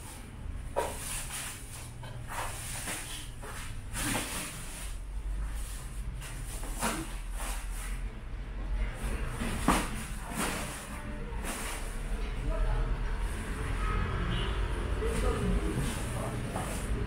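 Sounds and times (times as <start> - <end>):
wooden slats scraping: 0.1 - 8.0.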